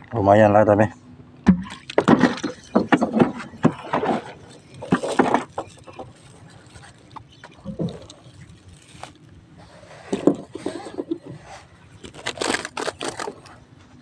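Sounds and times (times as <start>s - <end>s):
crab trap knocks and scrapes: 1.5s - 6.2s.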